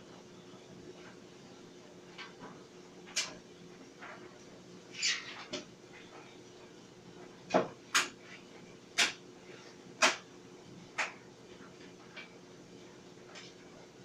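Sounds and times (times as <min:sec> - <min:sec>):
clothes dryer humming: 0:00.0 - 0:04.8.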